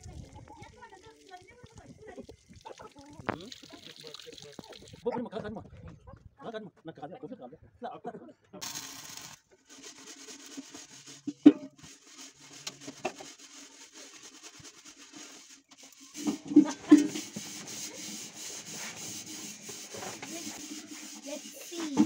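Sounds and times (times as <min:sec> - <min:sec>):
chicken rubbing and knocking on burner: 0:09.6 - 0:22.0.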